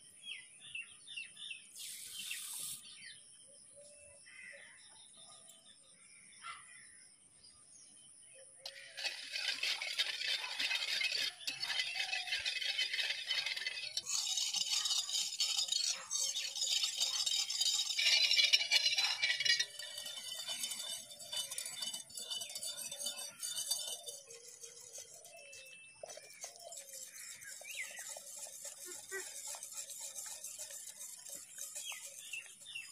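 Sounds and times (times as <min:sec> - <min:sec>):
whisk scraping metal pan: 0:01.8 - 0:02.8, 0:08.7 - 0:32.9
liquid sloshing: 0:08.7 - 0:25.3, 0:26.0 - 0:32.9.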